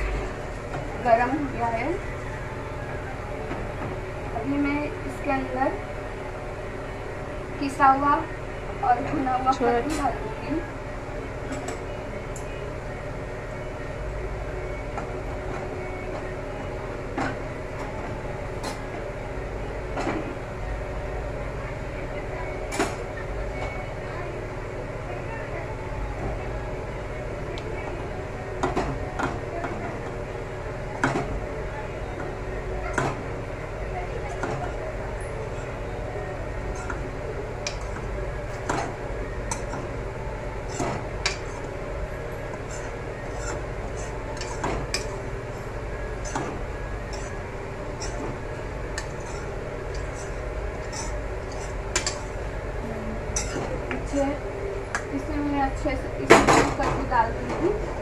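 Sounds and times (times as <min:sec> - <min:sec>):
steady background hum: 0:00.0 - 0:58.0
metal spoon scraping and tapping: 0:42.5 - 0:45.1, 0:48.0 - 0:48.3, 0:49.0 - 0:52.4.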